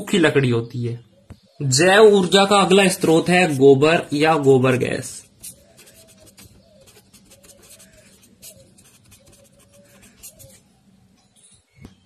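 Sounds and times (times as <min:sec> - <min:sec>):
marker scratching on paper: 0:05.2 - 0:10.7.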